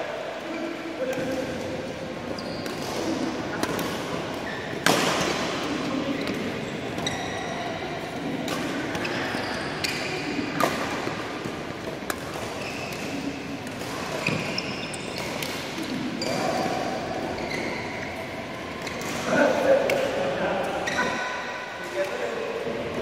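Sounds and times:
shoes squeaking on court: 2.2s - 4.9s, 5.6s - 19.2s, 20.8s - 21.4s
racket hitting shuttlecock: 2.6s - 7.2s, 8.2s - 17.0s.

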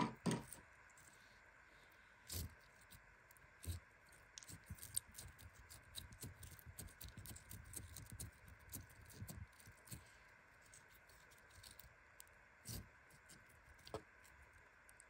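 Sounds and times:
slime clicking and squelching: 3.6s - 10.0s.

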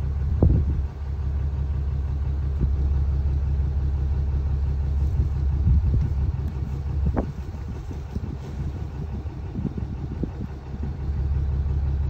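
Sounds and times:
wind buffeting microphone: 0.0s - 1.0s, 4.6s - 12.0s.

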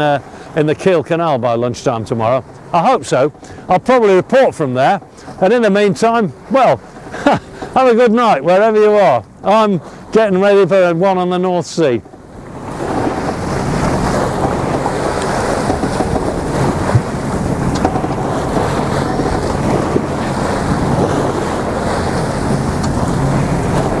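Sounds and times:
water rushing along hull: 0.0s - 24.0s
wind buffeting microphone: 0.0s - 24.0s.

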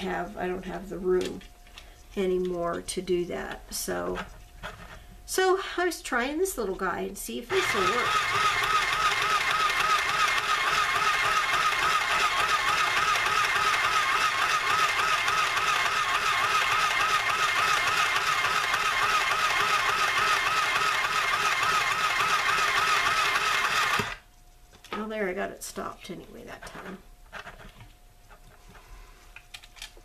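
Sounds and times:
sewing machine running: 7.5s - 24.2s.

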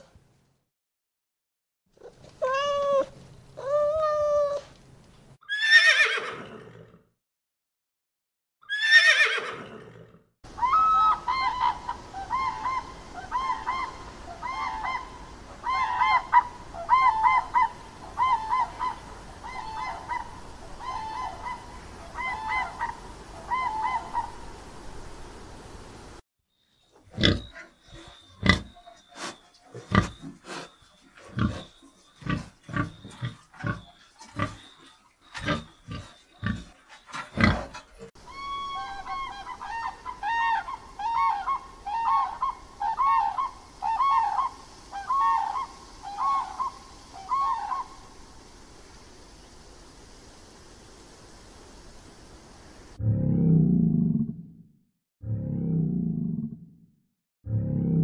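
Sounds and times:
cat meowing: 2.4s - 4.7s
loud falling animal calls: 10.5s - 24.6s, 38.2s - 48.1s
pigs squealing: 27.1s - 44.5s.

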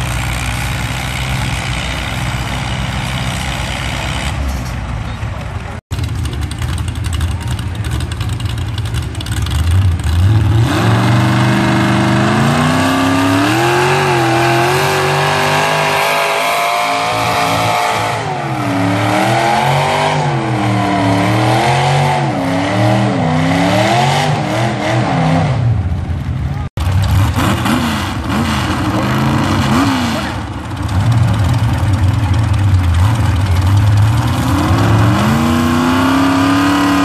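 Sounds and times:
tractor engine under load: 0.0s - 20.8s, 25.8s - 36.8s.

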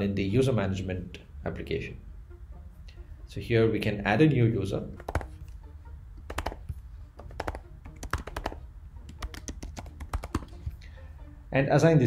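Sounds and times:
keyboard typing: 5.0s - 5.6s, 6.2s - 10.8s.

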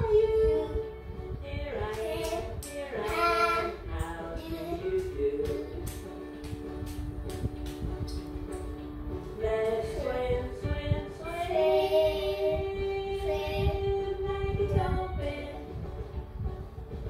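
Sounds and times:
child singing over music: 0.0s - 6.1s, 9.3s - 15.7s.

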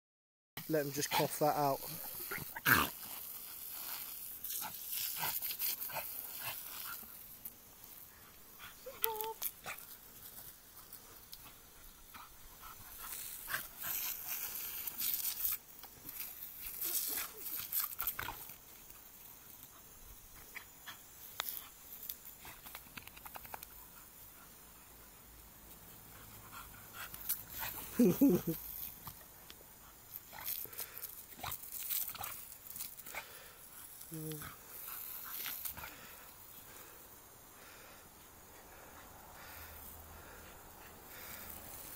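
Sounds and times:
dog breathing: 38.6s - 41.8s.

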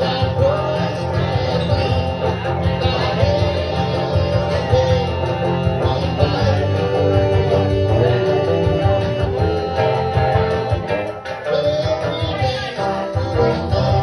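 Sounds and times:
country band music: 0.0s - 14.0s
man singing into a microphone: 0.0s - 14.0s.

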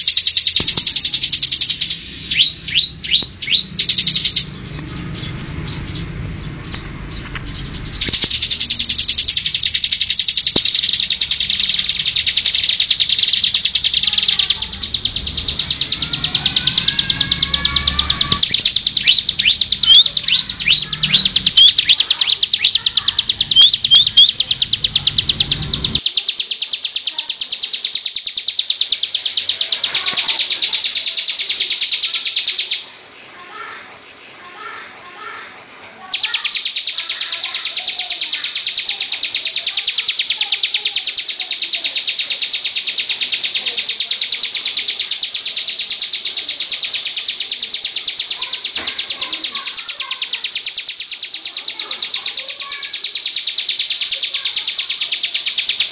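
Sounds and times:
bird singing high trill: 0.0s - 33.0s, 36.1s - 55.9s
sharp sweeping bird notes: 0.0s - 35.4s.

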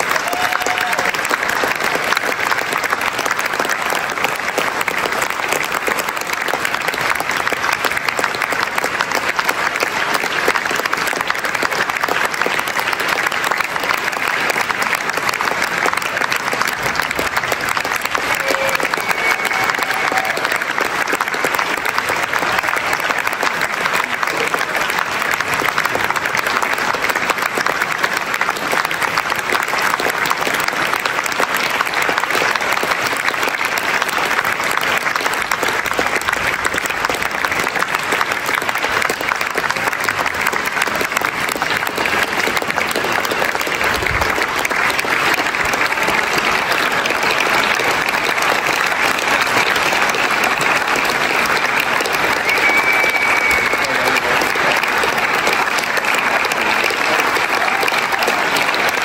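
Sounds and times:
audience applauding: 0.0s - 59.0s.

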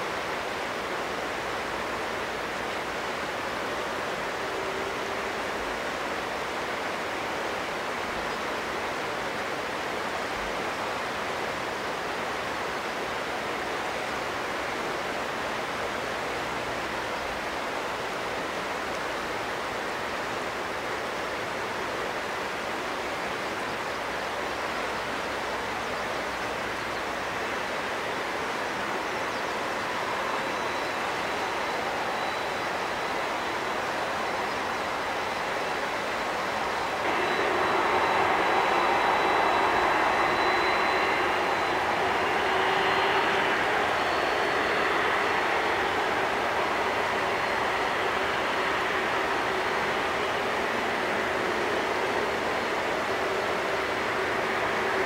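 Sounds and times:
jet engines rushing: 29.6s - 55.0s.

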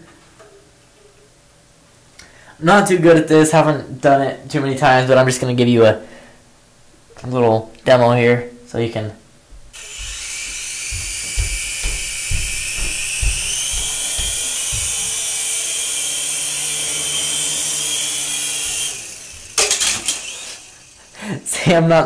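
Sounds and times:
low thumps: 9.5s - 15.5s
toy helicopter rotors whirring: 9.8s - 21.2s.

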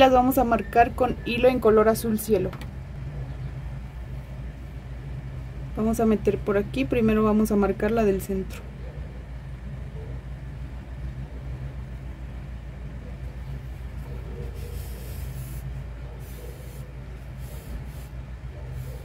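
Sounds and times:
low background hum: 0.0s - 19.0s.

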